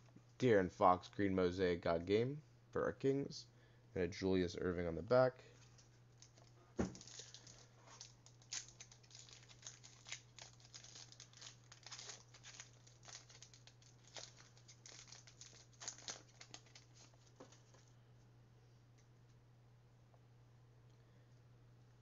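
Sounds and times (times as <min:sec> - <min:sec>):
foil wrapper crinkling: 0:05.6 - 0:17.9.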